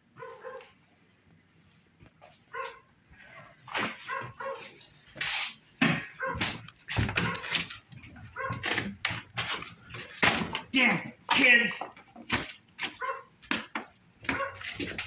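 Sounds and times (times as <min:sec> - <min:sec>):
dog barking and yipping: 0:00.2 - 0:00.8, 0:02.5 - 0:04.8, 0:06.1 - 0:06.6, 0:07.2 - 0:07.5, 0:08.2 - 0:08.8, 0:12.9 - 0:13.4, 0:14.2 - 0:15.0.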